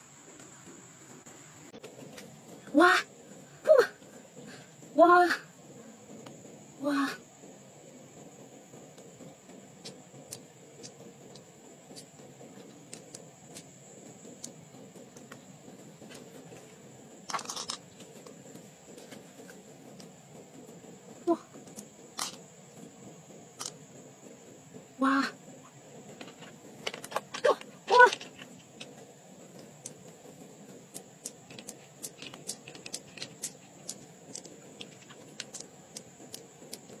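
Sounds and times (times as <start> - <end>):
fingers handling pearls clicking: 30.9 - 37.0.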